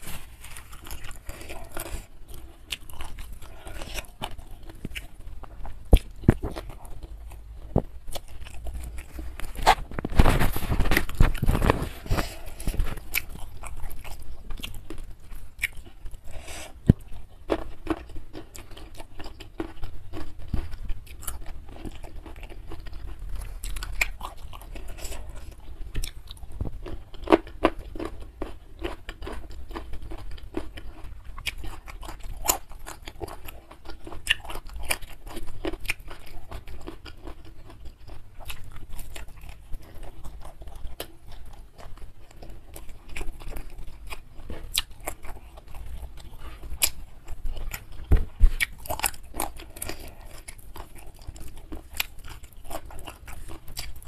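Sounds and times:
person chewing food: 0.0 - 54.0.

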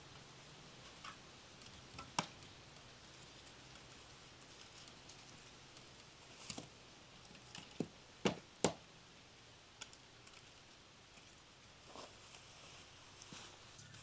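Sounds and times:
firewood logs knocking together: 7.5 - 8.8.

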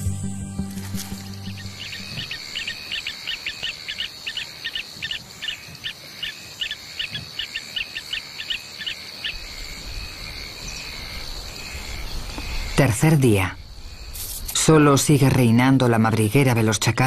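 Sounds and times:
high-pitched insect drone: 0.9 - 12.8
bird chirping: 1.3 - 12.9.

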